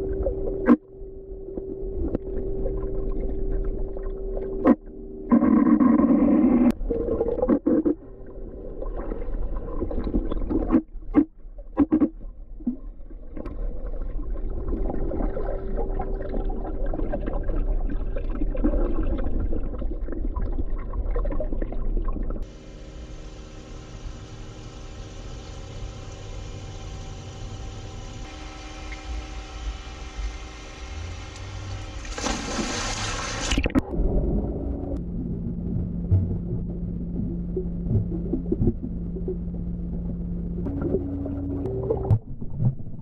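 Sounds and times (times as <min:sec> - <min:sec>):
churning water and bubbles underwater: 0:00.0 - 0:43.0
steady underwater hum: 0:00.0 - 0:43.0
steady tones: 0:33.6 - 0:42.5
underwater thumps: 0:35.0 - 0:43.0.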